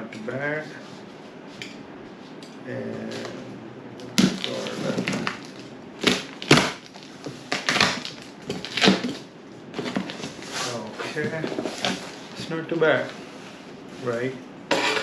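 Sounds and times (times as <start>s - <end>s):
cardboard cracking and snapping: 4.1s - 9.2s.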